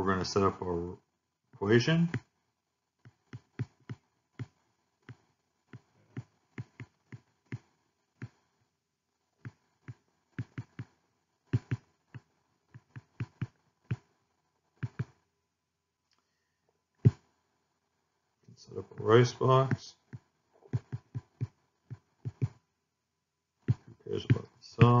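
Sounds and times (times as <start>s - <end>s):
stylus tapping tablet screen: 2.0s - 2.4s, 3.0s - 8.6s, 9.4s - 14.2s, 14.8s - 15.2s, 17.0s - 17.3s, 18.9s - 22.6s, 23.6s - 25.0s.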